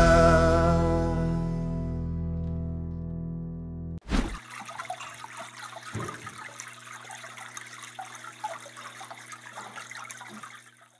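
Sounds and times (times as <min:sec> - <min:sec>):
water trickling over pebbles: 0:04.4 - 0:10.9.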